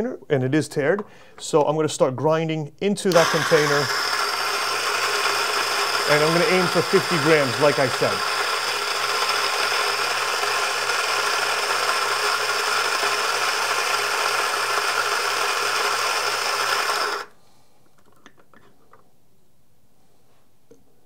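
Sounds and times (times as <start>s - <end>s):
coffee grinder grinding beans: 3.1s - 17.3s.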